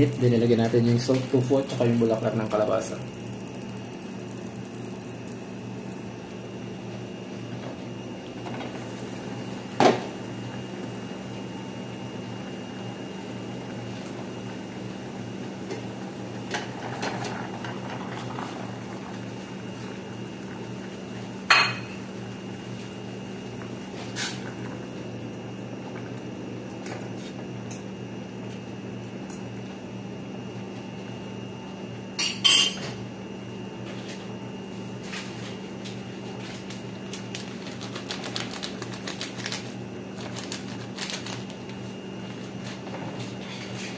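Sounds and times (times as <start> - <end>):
steady low hum: 0.0 - 43.9.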